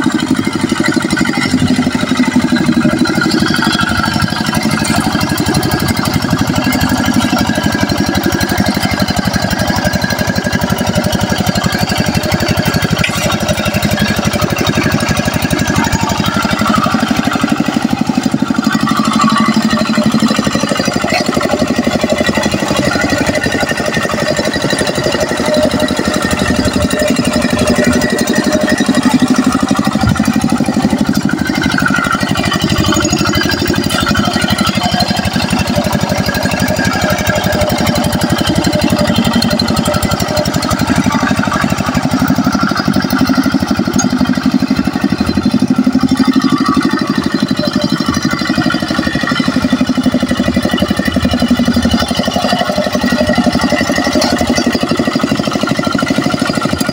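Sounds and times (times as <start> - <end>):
diesel engine running: 0.0 - 56.9.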